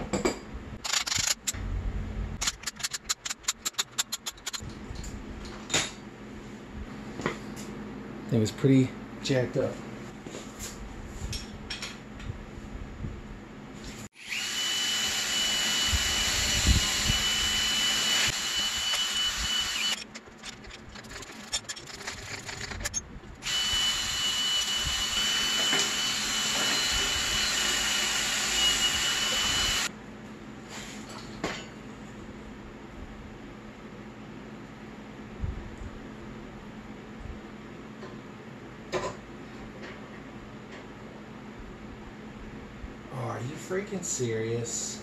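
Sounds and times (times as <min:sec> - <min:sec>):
power tool high whine: 0:14.2 - 0:20.1, 0:23.4 - 0:29.9.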